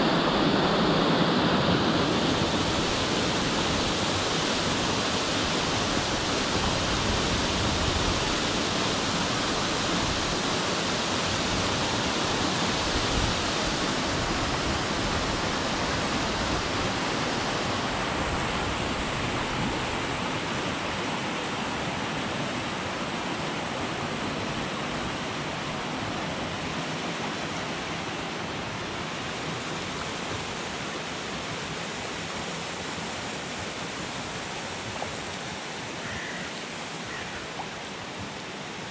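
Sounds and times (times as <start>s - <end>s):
waterfall rushing: 0.0s - 38.9s.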